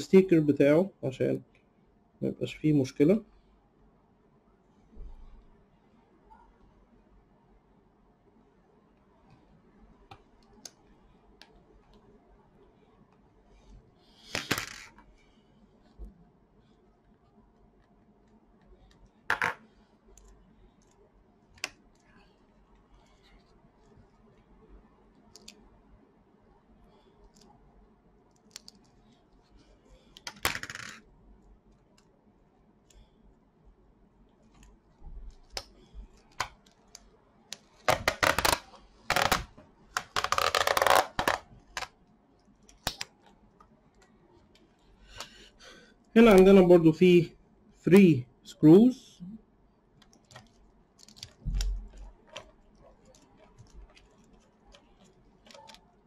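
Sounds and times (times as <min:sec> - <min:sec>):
faint scratches and clicks: 0:13.1 - 0:26.0, 0:26.8 - 0:30.3, 0:34.3 - 0:45.4, 0:50.0 - 0:56.0.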